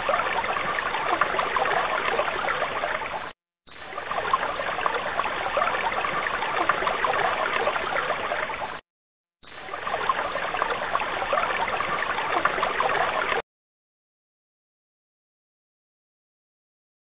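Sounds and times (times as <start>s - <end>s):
stream water babbling: 0.0s - 8.8s, 9.4s - 13.4s.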